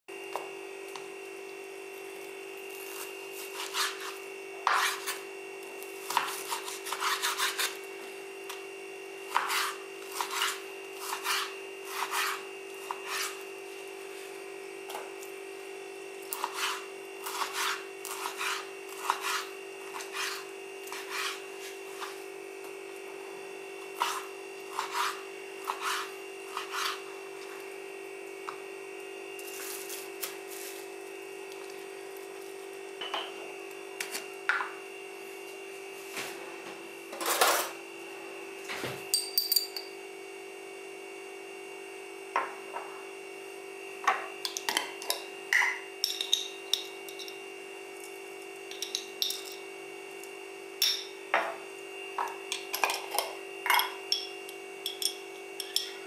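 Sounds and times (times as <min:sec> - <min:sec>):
steady background hum: 0:00.1 - 0:56.0
knife slicing meat on board: 0:03.0 - 0:05.2, 0:06.0 - 0:07.8, 0:09.3 - 0:13.4, 0:16.3 - 0:22.2, 0:24.0 - 0:27.0.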